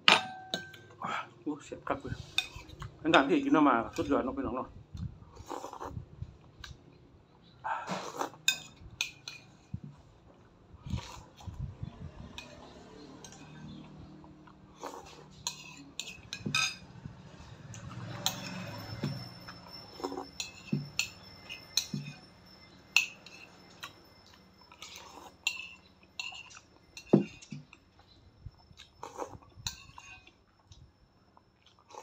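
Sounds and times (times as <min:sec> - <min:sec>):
spoon clinking on ceramic bowl: 0:00.1 - 0:00.9, 0:15.4 - 0:16.9, 0:18.0 - 0:27.6
slurping and sipping: 0:05.2 - 0:06.1, 0:07.8 - 0:08.7, 0:10.8 - 0:11.6, 0:12.5 - 0:16.4, 0:19.9 - 0:21.6, 0:24.7 - 0:26.7, 0:28.8 - 0:30.4
chewing: 0:13.2 - 0:16.4, 0:19.6 - 0:21.2, 0:23.4 - 0:32.0.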